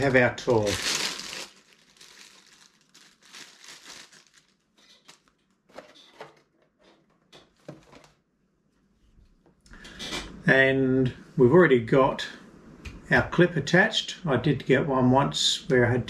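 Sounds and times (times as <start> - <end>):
plastic wrapping crinkling: 0.0 - 5.5.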